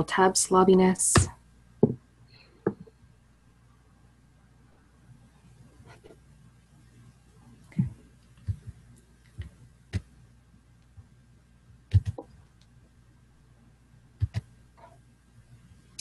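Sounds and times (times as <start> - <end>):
computer clicks and taps: 11.9 - 12.3, 14.2 - 14.5.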